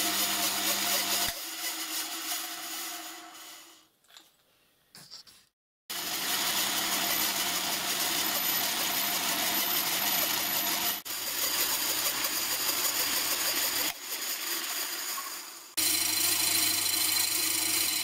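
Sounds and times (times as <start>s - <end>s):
pillar drill cutting metal: 5.9s - 18.0s.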